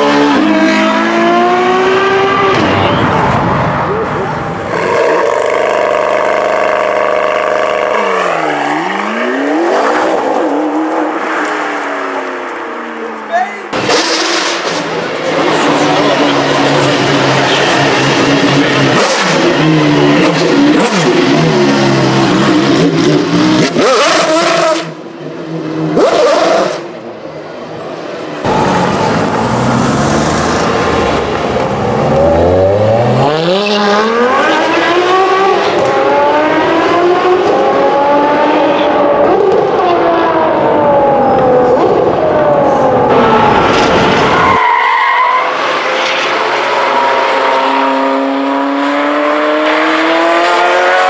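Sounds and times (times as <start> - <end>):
car accelerating through upshifts: 0.0 - 2.9, 15.4 - 27.0, 28.4 - 43.2, 44.8 - 51.0
car engine revving loudly: 0.0 - 11.2, 15.3 - 25.0, 25.9 - 27.0, 28.4 - 41.2, 45.4 - 51.0.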